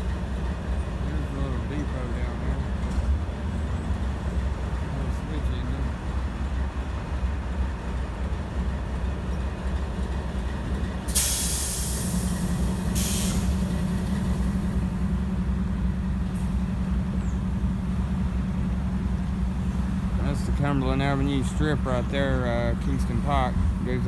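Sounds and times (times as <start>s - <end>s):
diesel locomotive rumbling: 0.0s - 24.0s
air brakes hissing: 11.0s - 14.8s.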